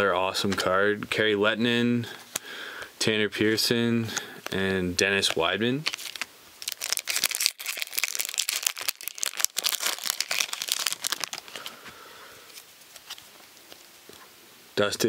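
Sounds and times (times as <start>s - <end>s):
foil wrapper crinkling and tearing: 5.8s - 11.8s.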